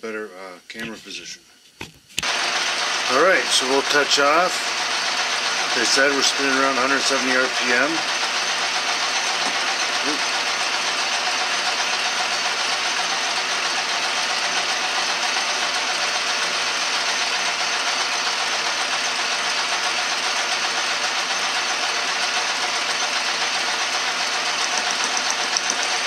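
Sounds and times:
metal lathe whirring: 2.2s - 26.0s.

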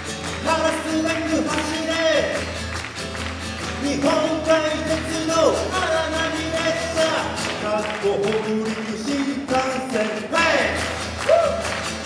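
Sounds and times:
acoustic guitar: 0.0s - 12.0s
man singing: 0.4s - 2.4s, 3.8s - 11.0s.

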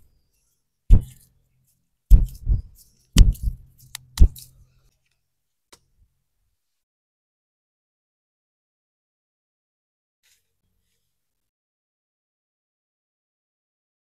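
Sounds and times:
hands slapping skin: 2.1s - 4.5s
sharp click: 3.2s - 4.5s.

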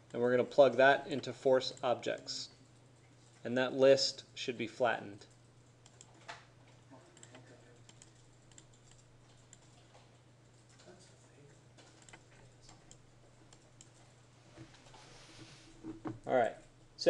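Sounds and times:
low electrical hum: 0.0s - 17.0s
mouse and keyboard clicking: 5.8s - 6.4s, 7.1s - 10.9s, 11.8s - 14.1s.

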